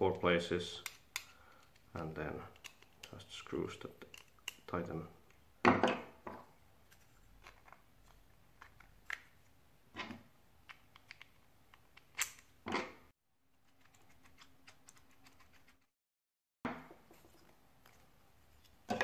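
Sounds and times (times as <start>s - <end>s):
plastic parts clicking and knocking: 0.8s - 3.3s, 3.9s - 5.9s.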